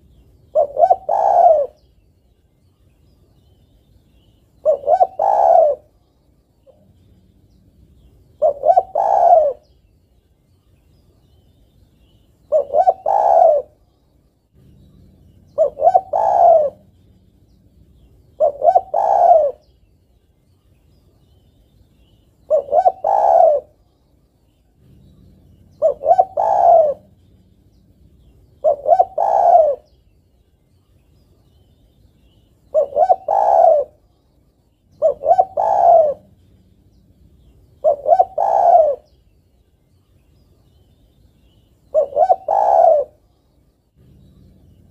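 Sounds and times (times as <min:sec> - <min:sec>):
dove cooing: 0:00.5 - 0:01.8, 0:04.6 - 0:06.0, 0:06.6 - 0:09.8, 0:12.4 - 0:13.8, 0:14.6 - 0:19.8, 0:22.4 - 0:23.8, 0:24.7 - 0:30.0, 0:32.7 - 0:34.1, 0:34.9 - 0:39.2, 0:41.8 - 0:43.3, 0:44.0 - 0:44.9.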